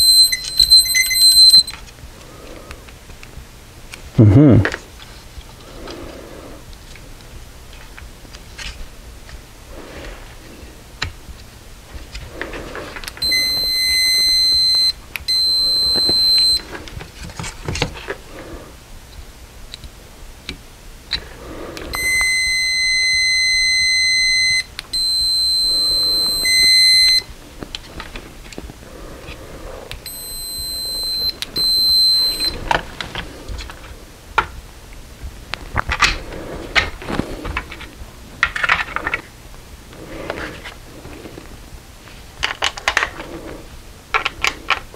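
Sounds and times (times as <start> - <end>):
multimeter continuity beep: 0.0 - 1.8, 13.2 - 16.7, 21.9 - 27.3, 30.0 - 32.6.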